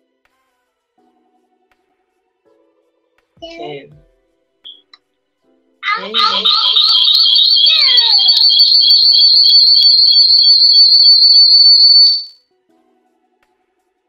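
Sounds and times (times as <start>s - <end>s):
warbling electronic tone: 5.8s - 12.3s.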